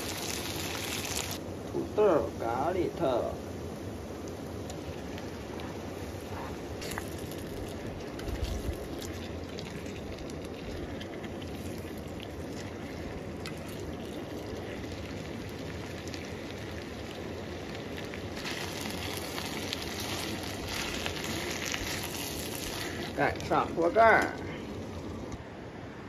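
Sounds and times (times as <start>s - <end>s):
potato sizzling in a frying pan: 0.0s - 1.4s, 6.8s - 24.3s.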